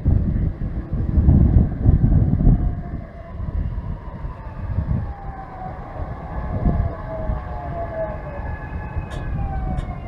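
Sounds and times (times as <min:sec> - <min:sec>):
wheels rumbling on rails: 0:00.0 - 0:10.0
subway train motors whining: 0:04.8 - 0:10.0.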